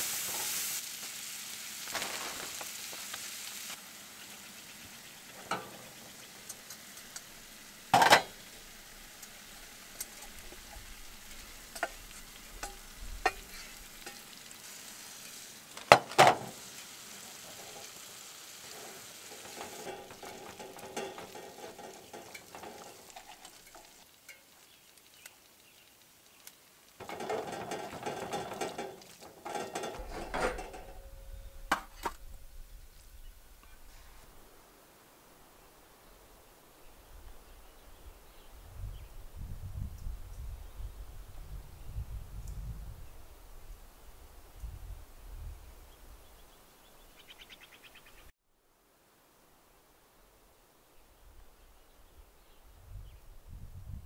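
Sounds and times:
food sizzling in a frying pan: 0.0 - 34.0
metal utensil scraping pan: 5.2 - 8.6, 9.4 - 24.5, 27.0 - 32.2
metal clinking on pan: 5.4 - 8.4, 10.0 - 14.4, 18.6 - 24.5, 27.0 - 32.2.

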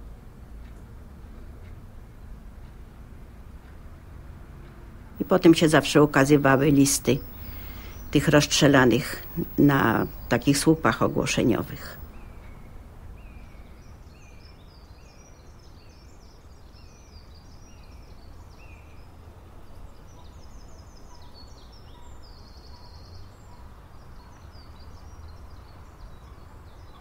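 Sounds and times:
low background rumble: 5.2 - 12.1
small birds singing: 5.2 - 19.2, 19.9 - 27.0.

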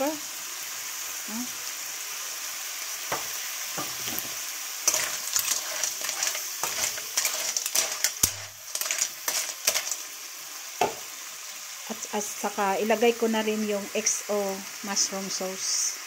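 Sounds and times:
clams sizzling in a wok: 0.0 - 16.0
shells clattering against pan: 4.9 - 10.1.

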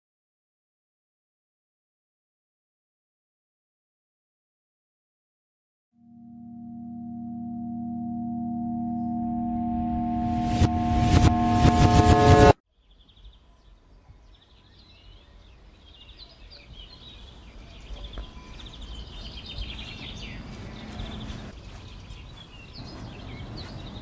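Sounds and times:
small birds chirping: 12.7 - 24.0.

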